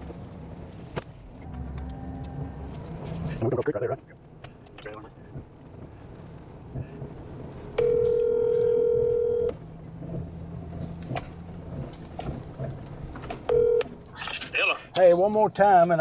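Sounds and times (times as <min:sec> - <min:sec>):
low vehicle rumble: 0:00.0 - 0:16.0
telephone ringback tone: 0:07.8 - 0:09.5, 0:13.5 - 0:13.8.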